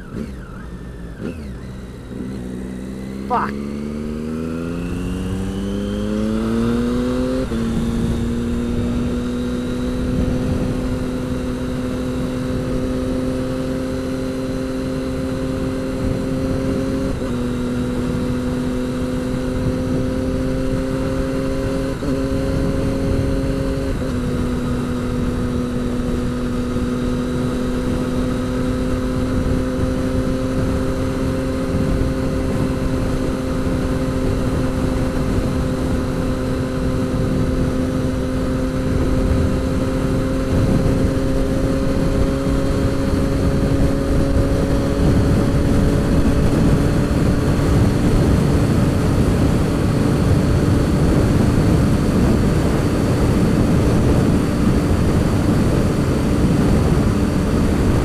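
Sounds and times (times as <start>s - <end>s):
motorcycle engine accelerating and cruising: 0.0s - 58.0s
wind and road noise: 0.0s - 58.0s.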